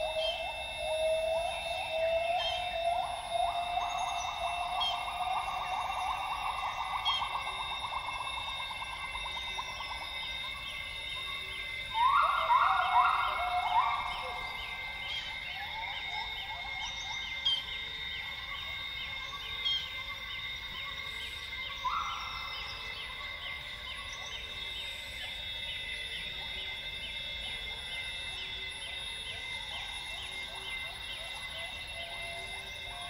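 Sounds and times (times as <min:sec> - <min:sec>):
high-pitched rainforest chorus: 0:00.0 - 0:33.0
gibbons whooping: 0:11.9 - 0:14.9.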